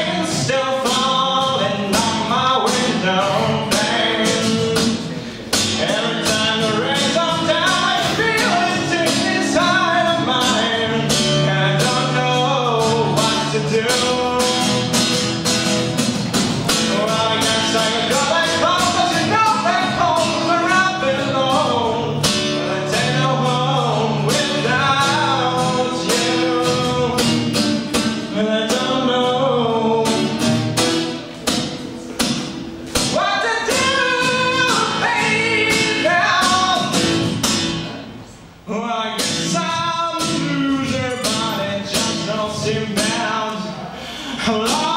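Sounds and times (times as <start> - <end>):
person singing: 0.0 - 15.0, 16.7 - 30.6, 33.0 - 37.0
acoustic guitar strumming: 0.0 - 44.9.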